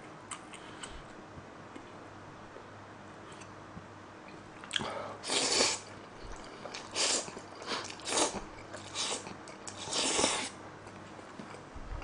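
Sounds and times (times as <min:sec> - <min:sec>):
slurping noodles: 0:05.2 - 0:05.9, 0:06.8 - 0:10.6.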